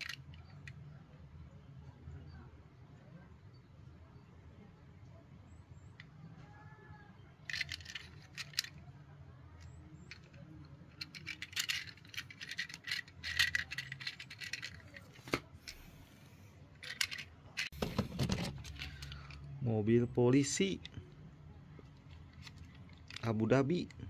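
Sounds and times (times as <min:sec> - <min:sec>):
toy parts clicking and rattling: 0:00.0 - 0:00.8, 0:07.4 - 0:09.0, 0:09.6 - 0:15.9, 0:16.7 - 0:19.5, 0:21.8 - 0:24.0.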